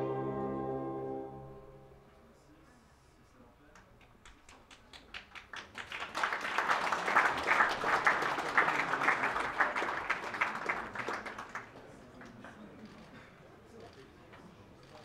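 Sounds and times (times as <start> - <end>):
audience applauding: 4.2 - 12.5.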